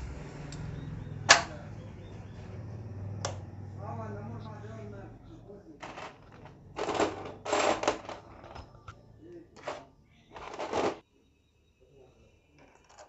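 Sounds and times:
metal parts clinking and rattling: 5.8 - 8.9, 9.6 - 11.0.

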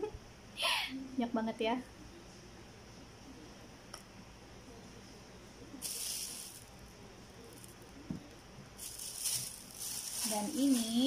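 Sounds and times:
food packaging rustling: 5.8 - 6.7, 8.8 - 11.0.

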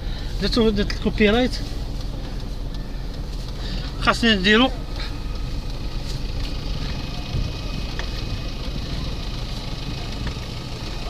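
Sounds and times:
car engine and tyre rumble: 0.0 - 11.0
faint clicks: 1.6 - 4.1.

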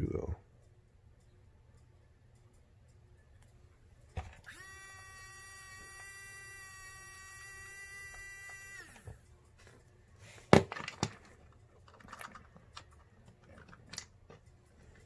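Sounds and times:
electric motor whining: 4.4 - 9.2.

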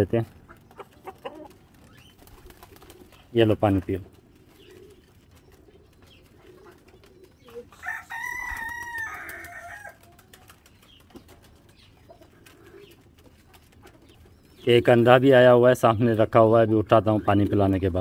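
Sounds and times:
pigeons cooing: 0.3 - 17.6
rooster crowing: 7.8 - 10.0.

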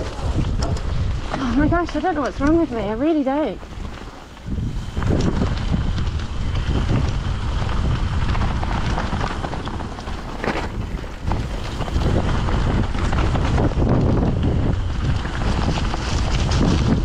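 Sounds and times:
bike knocks and rattles: 0.0 - 17.0
bike tyres rolling over dirt: 0.0 - 17.0
wind buffeting microphone: 0.0 - 17.0.

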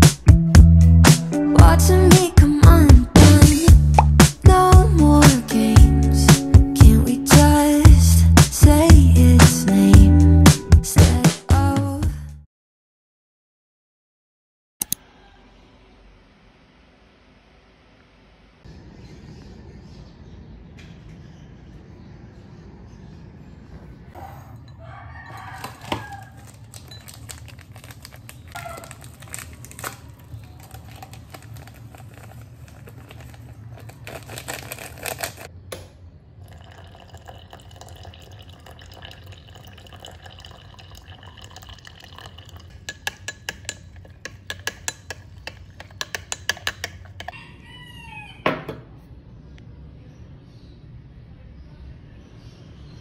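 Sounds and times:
water dispenser running: 36.4 - 43.2
spoon clinking against glass: 36.4 - 47.3.

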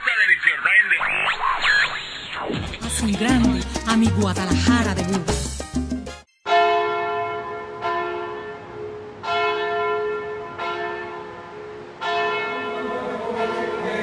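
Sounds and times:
church bell tolling: 6.5 - 14.0.

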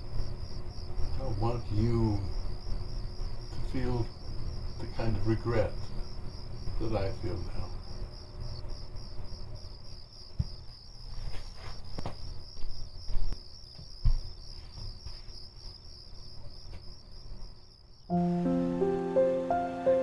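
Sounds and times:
crickets chirping: 0.0 - 20.0
music: 18.1 - 20.0.

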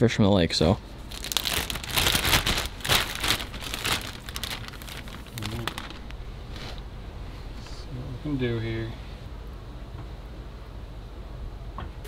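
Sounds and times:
plastic bag crinkling: 1.0 - 6.2.

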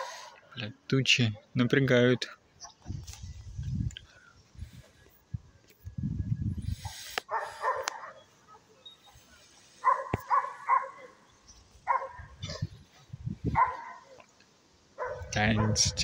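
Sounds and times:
dog barking: 7.2 - 8.8, 9.8 - 14.2, 15.0 - 16.0.

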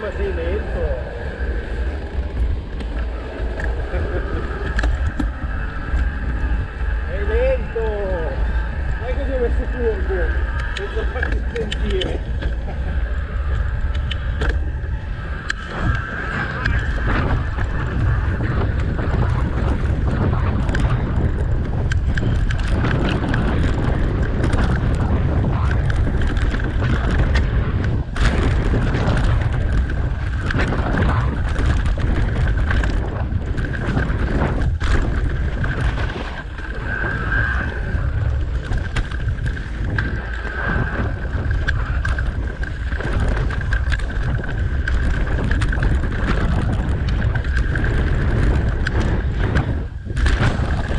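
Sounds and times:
steady high whine: 0.0 - 50.9
wind buffeting microphone: 0.0 - 50.9
bike knocks and rattles: 15.5 - 36.8, 38.2 - 50.9.

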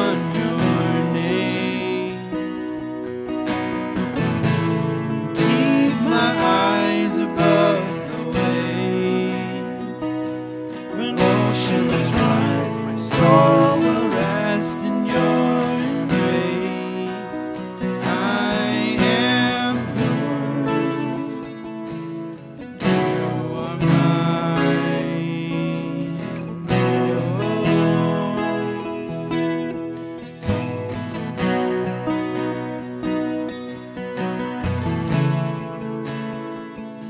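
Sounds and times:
men singing worship song: 0.0 - 2.4, 5.3 - 10.1, 10.9 - 21.4, 23.4 - 26.2
acoustic guitars strummed: 0.0 - 37.0.

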